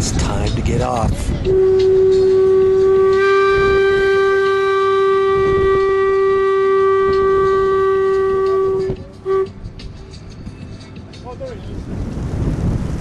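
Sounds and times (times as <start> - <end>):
boat horn long blast: 1.4 - 9.6.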